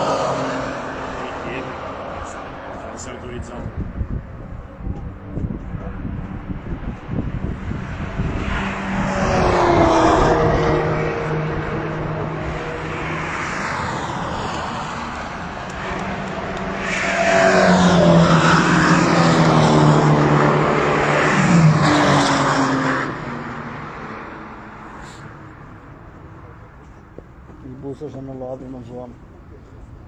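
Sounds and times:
race cars passing: 0.0s - 30.0s.

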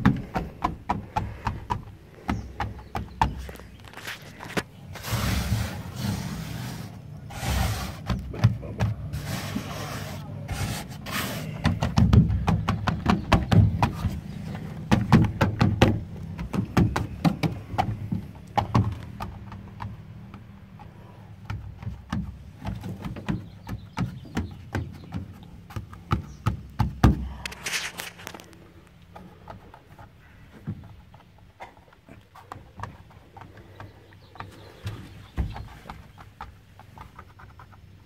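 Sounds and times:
low thumps and knocks: 0.0s - 3.9s, 11.6s - 27.4s, 32.6s - 37.2s.

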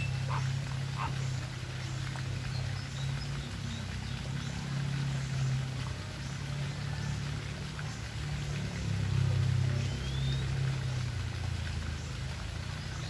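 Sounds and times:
flamingos calling: 0.0s - 1.6s.

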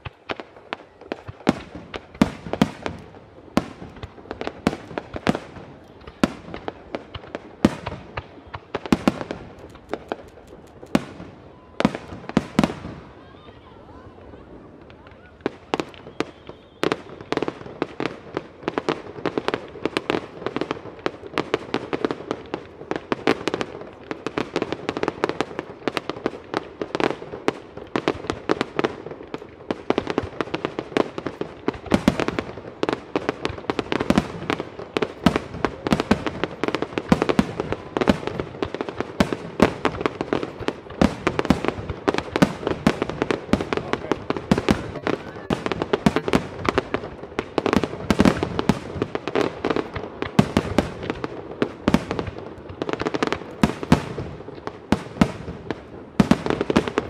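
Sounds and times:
fireworks banging: 0.0s - 57.0s.

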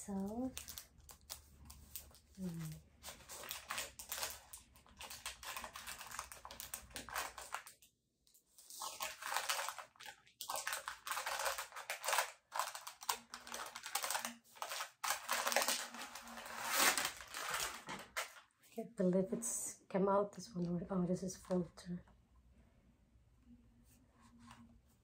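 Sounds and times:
packaging rustling and crackling: 0.0s - 7.9s, 8.6s - 18.5s.

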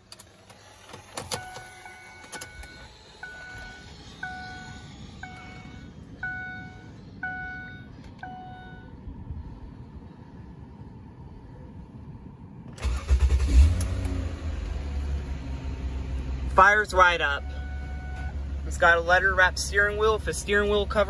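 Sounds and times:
car warning chime dinging: 1.2s - 9.0s, 16.6s - 21.0s.

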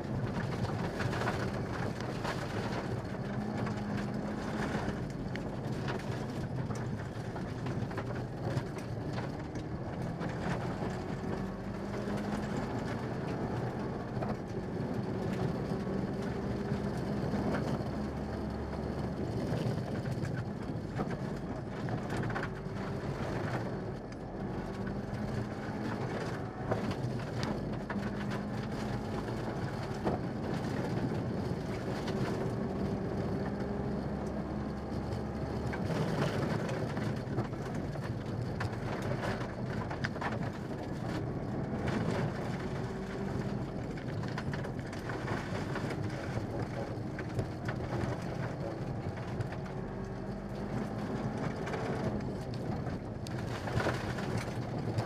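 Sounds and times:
rally car engine revving: 0.0s - 55.0s.

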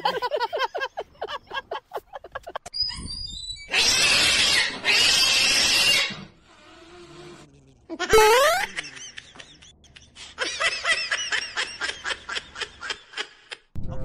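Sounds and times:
faint low growl: 6.5s - 7.9s.

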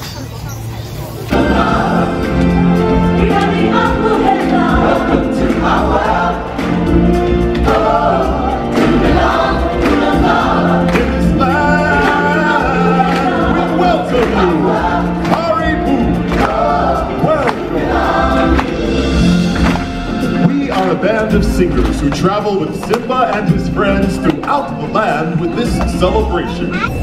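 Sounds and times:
choir singing: 1.3s - 22.0s.

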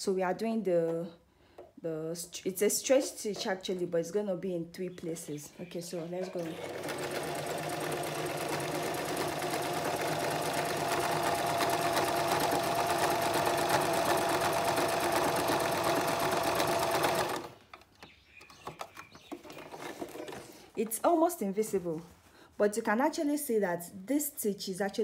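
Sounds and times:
sewing machine running: 6.3s - 17.6s.

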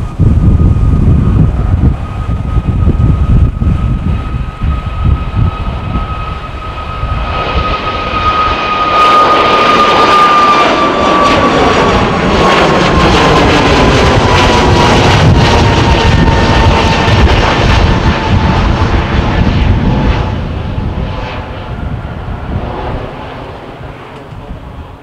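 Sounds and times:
jet engine fan whine: 0.0s - 25.0s
jet roar: 0.0s - 25.0s.

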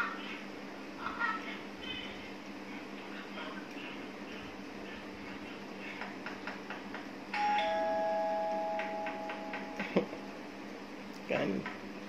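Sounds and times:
two-note doorbell chime: 7.4s - 9.8s.

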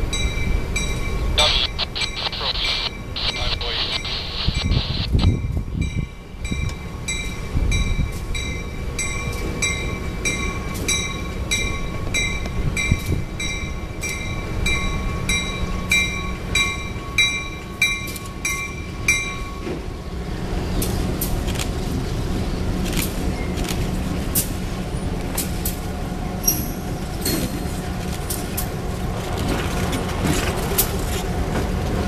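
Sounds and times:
crossing warning bell: 0.0s - 19.9s, 26.4s - 27.7s
diesel locomotive rumbling: 0.0s - 32.0s.

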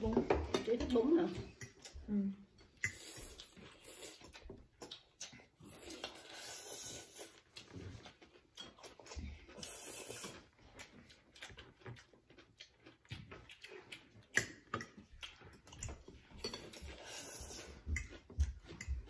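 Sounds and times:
noodle slurping: 2.8s - 8.2s, 8.9s - 10.9s, 16.9s - 17.9s.

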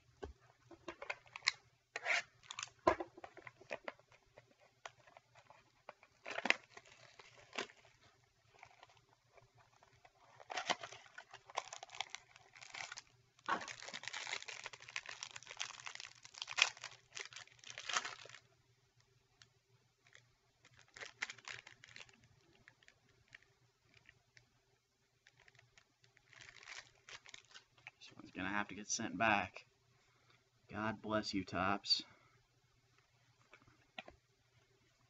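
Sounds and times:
wrapper crinkling and tearing: 1.1s - 2.8s, 4.9s - 18.5s, 20.0s - 24.1s, 25.2s - 27.9s.

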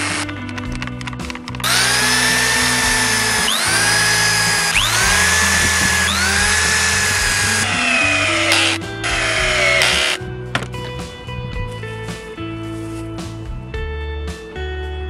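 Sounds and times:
electric drill whining: 0.0s - 0.5s, 1.6s - 10.2s.

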